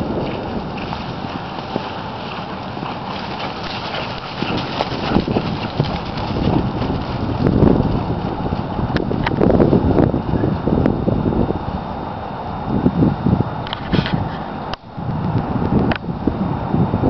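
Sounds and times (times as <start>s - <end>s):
horse hoofbeats on grass and dirt: 0.0s - 11.1s.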